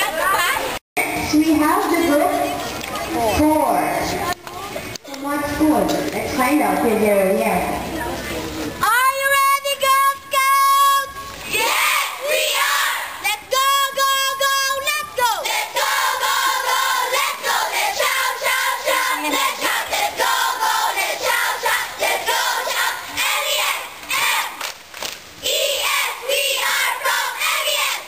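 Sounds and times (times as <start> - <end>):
girls shouting a cheer in unison: 8.9 - 24.7, 25.4 - 28.0.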